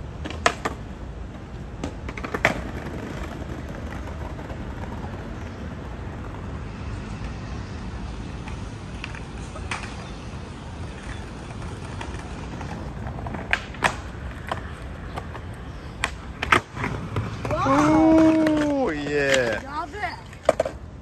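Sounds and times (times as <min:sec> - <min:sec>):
skateboard wheels rolling on bricks: 0:00.0 - 0:21.0
skateboard clacks: 0:00.1 - 0:06.6, 0:08.3 - 0:21.0.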